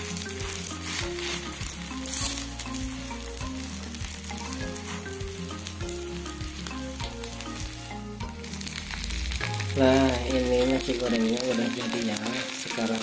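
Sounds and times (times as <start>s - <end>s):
wooden spatula stirring: 0.0s - 5.6s
background music with bass line: 0.0s - 13.0s
rice sizzling in a frying pan: 0.0s - 13.0s.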